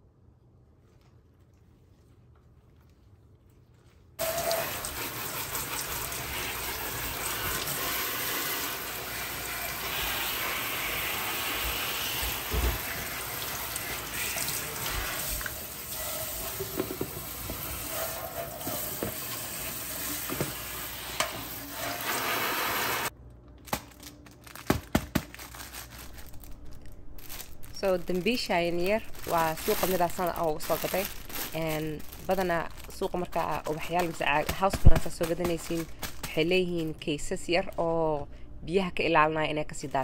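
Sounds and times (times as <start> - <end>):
faucet water rushing into sink: 4.2 - 23.1.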